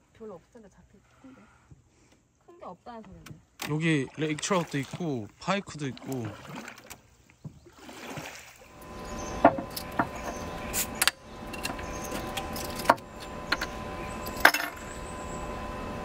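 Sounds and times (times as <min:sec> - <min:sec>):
faint steady hum: 0:08.6 - 0:16.0.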